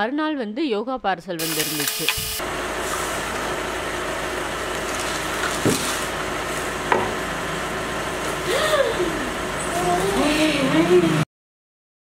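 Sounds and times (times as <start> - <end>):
car engine idling: 2.4 - 11.1.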